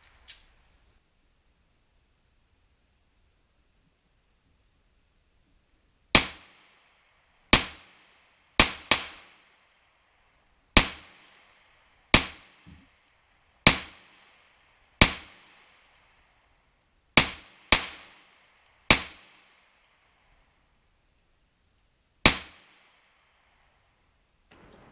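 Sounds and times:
pistol shots: 17.2s - 18.3s.

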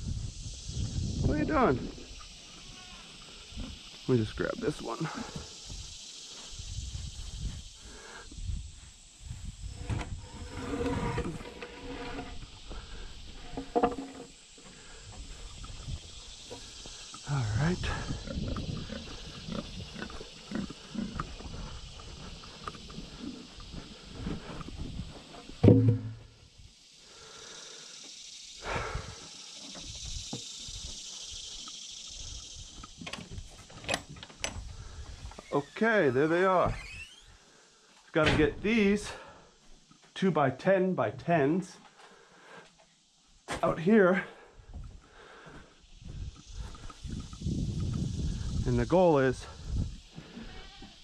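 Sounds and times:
steady high hiss: 0.0s - 51.0s
wooden board scraping over grass: 9.6s - 14.4s, 25.3s - 26.3s
pigs grunting: 17.1s - 24.3s
sharp knock: 25.6s - 26.2s.

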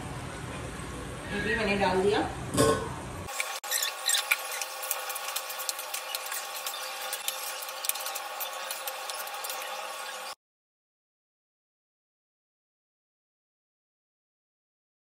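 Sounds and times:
pasta sizzling in a frying pan: 3.3s - 10.4s.

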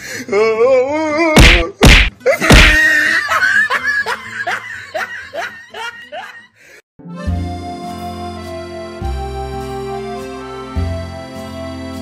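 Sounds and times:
people laughing hard: 2.3s - 6.6s.

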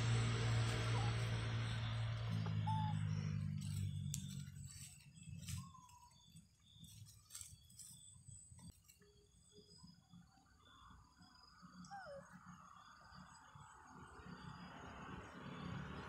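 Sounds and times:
monkey squeaking: 2.5s - 3.6s.

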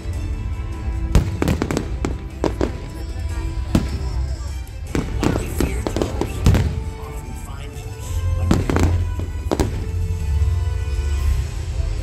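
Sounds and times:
music playing: 0.0s - 12.0s
fireworks bursting with sharp bangs: 1.0s - 11.5s.

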